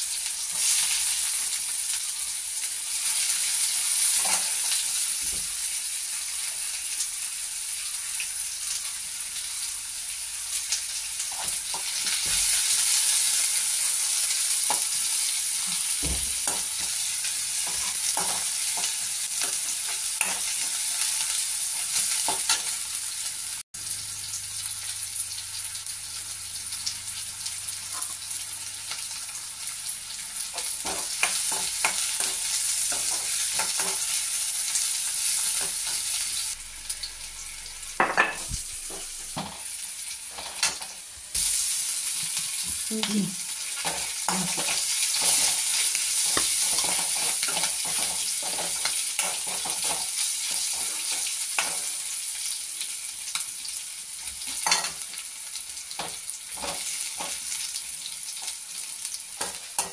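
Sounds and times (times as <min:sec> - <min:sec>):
vegetables sizzling in oil: 0:00.0 - 0:59.9
metal spoon scraping a pan: 0:17.6 - 0:21.2, 0:30.5 - 0:34.2, 0:43.8 - 0:52.0.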